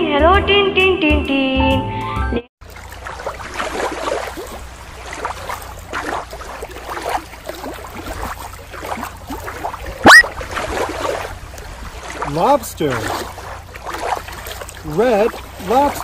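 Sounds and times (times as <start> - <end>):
water lapping against rocky shore: 2.6 - 16.0
short loud rising swoop: 10.0 - 10.2.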